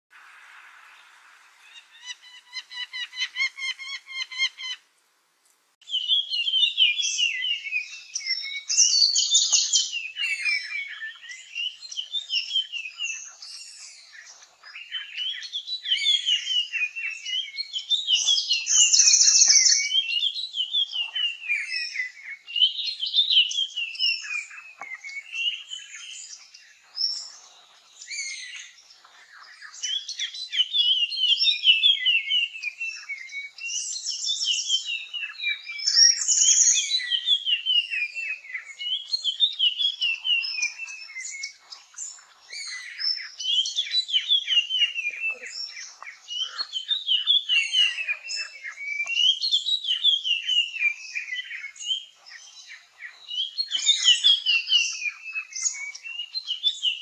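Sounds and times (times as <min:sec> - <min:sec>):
birds calling high notes: 0:34.5 - 0:57.0.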